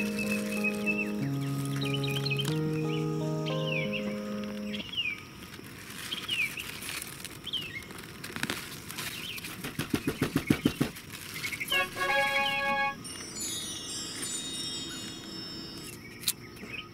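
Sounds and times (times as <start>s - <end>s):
bird chirping: 0.0s - 5.2s.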